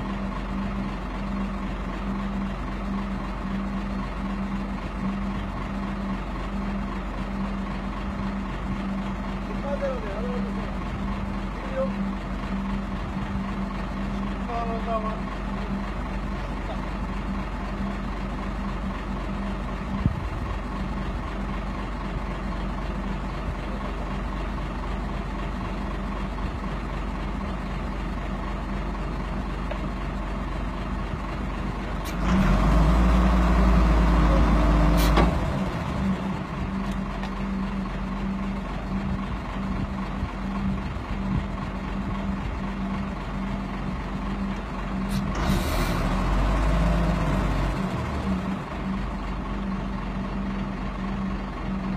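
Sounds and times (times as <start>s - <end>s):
crane engine running: 0.0s - 51.9s.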